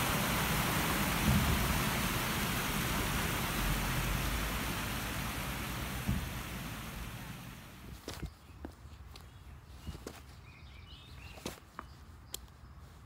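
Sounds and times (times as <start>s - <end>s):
fountain water cascading: 0.0s - 7.9s.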